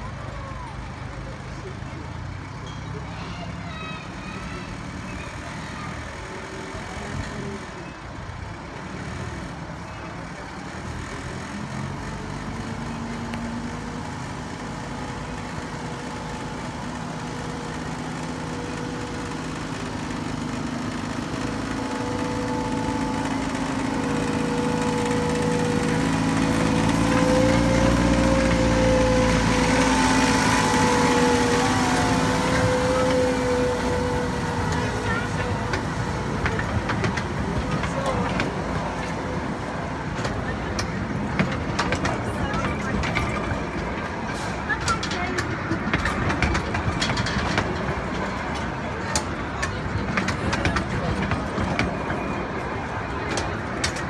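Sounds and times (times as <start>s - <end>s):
miniature locomotive engine running: 0.0s - 54.0s.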